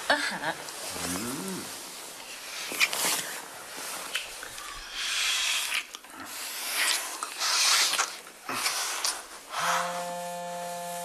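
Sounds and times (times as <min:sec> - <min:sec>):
bedsheets rustling: 0:00.4 - 0:04.5.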